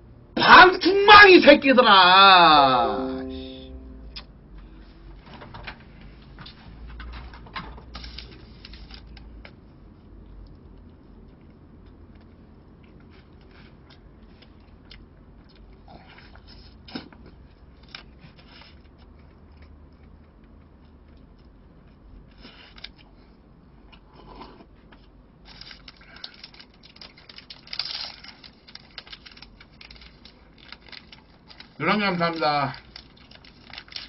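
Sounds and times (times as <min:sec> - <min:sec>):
low steady hum: 0:00.0 - 0:34.0
chewing: 0:09.1 - 0:31.8, 0:32.8 - 0:34.0.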